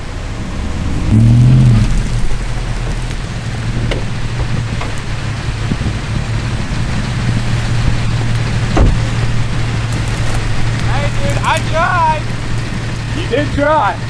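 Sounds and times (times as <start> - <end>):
rain: 0.0 - 14.0
vehicle engine running: 0.0 - 14.0.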